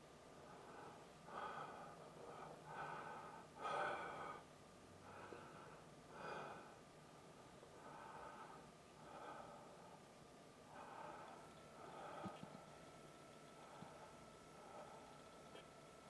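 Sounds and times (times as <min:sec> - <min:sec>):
person breathing noisily: 0:00.4 - 0:06.9, 0:07.8 - 0:10.0, 0:10.7 - 0:12.6, 0:13.5 - 0:15.6.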